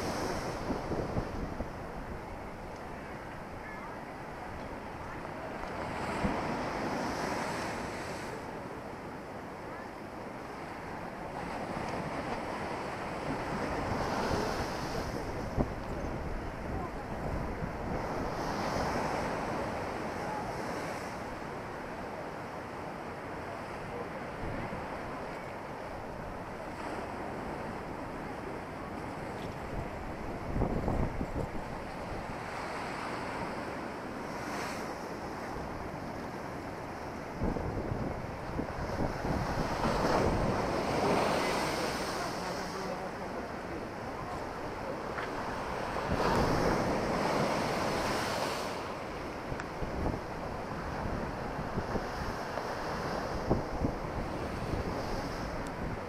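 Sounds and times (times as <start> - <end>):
wind buffeting microphone: 0.0 - 3.1, 29.4 - 32.6, 36.9 - 42.0, 49.3 - 56.0
storm waves washing over embankment: 0.0 - 56.0
surf breaking against sea wall: 10.6 - 56.0.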